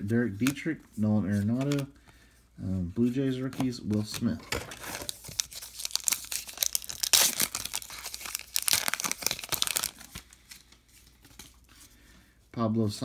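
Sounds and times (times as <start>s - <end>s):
cards being handled: 0.2s - 2.0s, 3.1s - 11.9s
card pack wrapper tearing: 3.9s - 10.3s.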